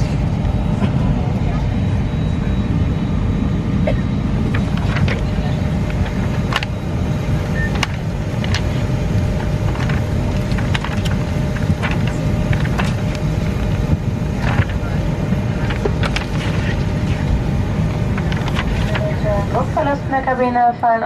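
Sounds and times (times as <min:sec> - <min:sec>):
airliner cabin rumble: 0:00.0 - 0:21.0
magazine pages rustling: 0:04.5 - 0:05.2, 0:07.7 - 0:17.3, 0:18.0 - 0:19.6.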